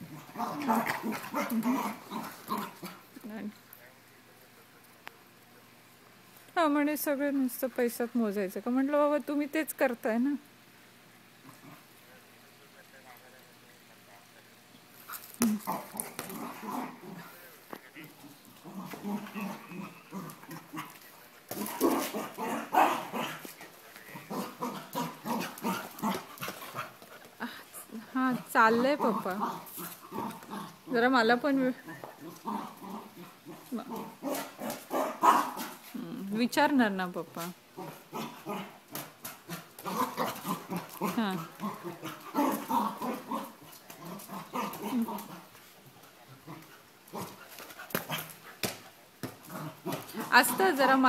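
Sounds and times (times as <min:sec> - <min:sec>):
dog barking: 0:34.2 - 0:35.7.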